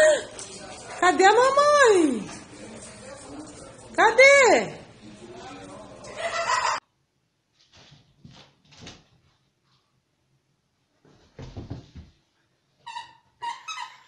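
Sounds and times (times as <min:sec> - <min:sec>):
scuffs and knocks around a door: 0:11.0 - 0:12.3.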